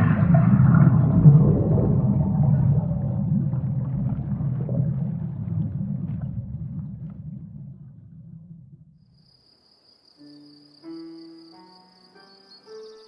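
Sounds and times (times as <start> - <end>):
deep rough rumble: 0.0 - 9.1.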